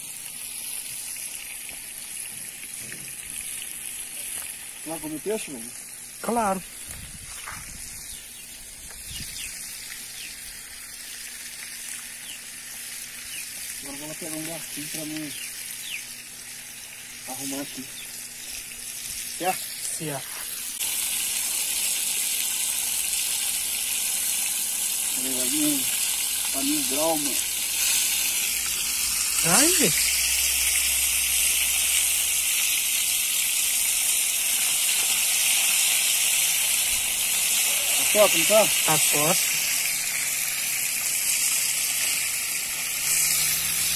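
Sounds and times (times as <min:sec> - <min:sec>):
fish sizzling in frying pan: 0:00.0 - 0:43.9.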